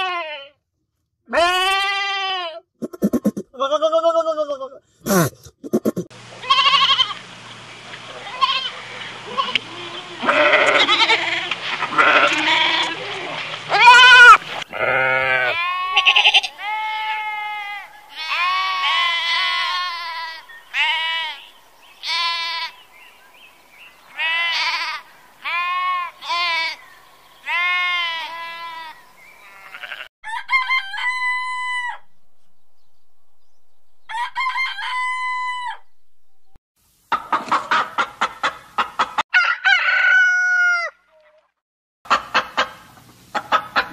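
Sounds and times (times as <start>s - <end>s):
goat kids bleating: 0.0s - 0.6s, 1.3s - 7.2s, 8.2s - 22.8s, 24.1s - 26.8s, 27.4s - 30.1s
lambs bleating: 1.3s - 2.6s, 3.6s - 7.2s, 8.3s - 22.8s, 24.1s - 26.8s, 27.4s - 30.1s
hen clucking: 2.8s - 4.0s, 5.1s - 7.2s, 37.1s - 39.2s, 42.1s - 43.9s.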